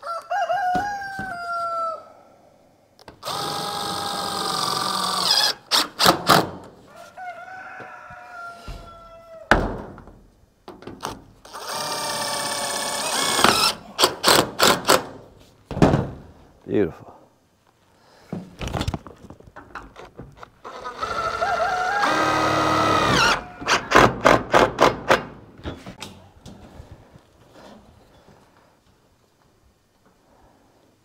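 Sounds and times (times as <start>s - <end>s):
rooster crowing: 0.0s - 2.3s, 6.9s - 9.5s, 20.9s - 23.8s
cordless drill driving screws into metal: 11.0s - 15.1s.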